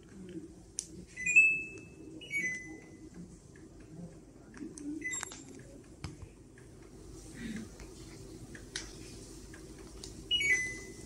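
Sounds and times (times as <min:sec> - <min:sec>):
faint steady hum: 0:00.0 - 0:11.0
air conditioner beep: 0:01.1 - 0:03.1, 0:04.9 - 0:05.5, 0:10.2 - 0:11.0.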